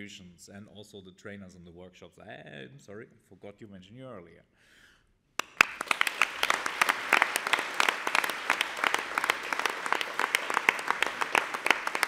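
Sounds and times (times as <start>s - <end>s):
audience applause: 5.4s - 12.0s
close sharp claps: 5.4s - 12.0s.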